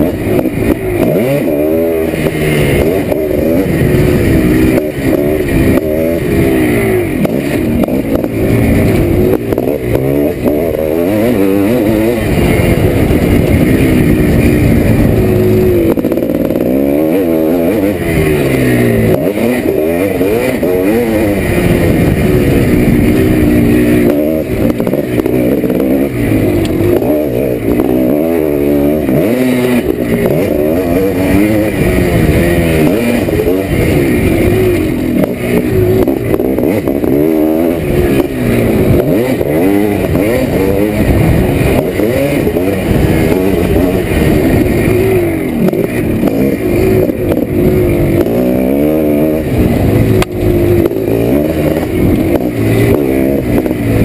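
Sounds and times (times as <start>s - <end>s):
two-stroke motorcycle engine revving: 0.0s - 54.0s.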